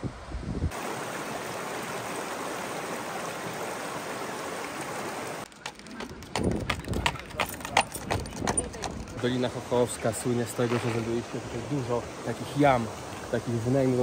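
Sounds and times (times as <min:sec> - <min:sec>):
stream rushing over stones: 0:00.7 - 0:05.5, 0:09.2 - 0:14.0.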